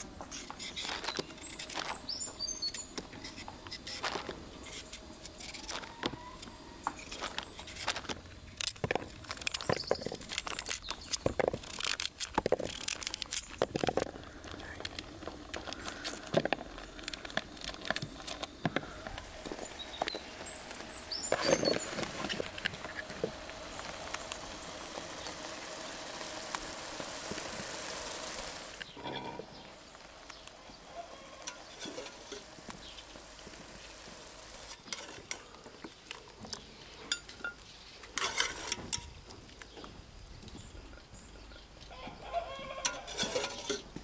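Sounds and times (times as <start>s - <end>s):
pot boiling with a hiss: 0.0s - 44.0s
knife scraping a carrot: 42.8s - 43.9s.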